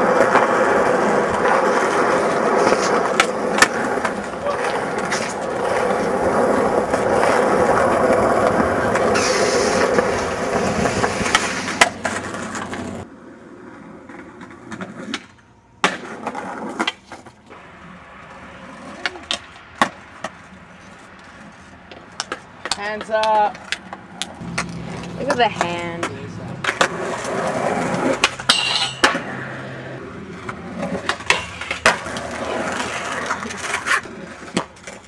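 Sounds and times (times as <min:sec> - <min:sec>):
skateboard clacking: 0:00.0 - 0:13.1, 0:14.0 - 0:35.0
skateboard wheels rolling on concrete: 0:00.0 - 0:35.0.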